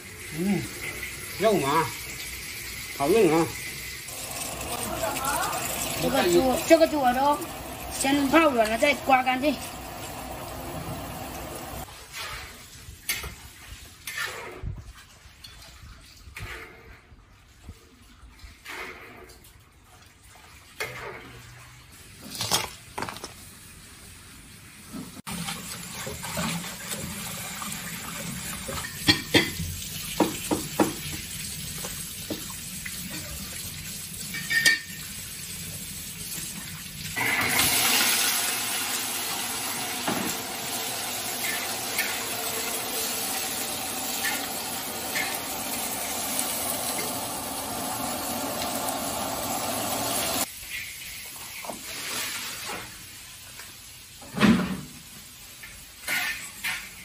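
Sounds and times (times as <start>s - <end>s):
meat sizzling in a wok: 0.0s - 11.9s, 25.3s - 54.3s
tap water running over greens: 0.5s - 11.9s, 25.3s - 50.5s.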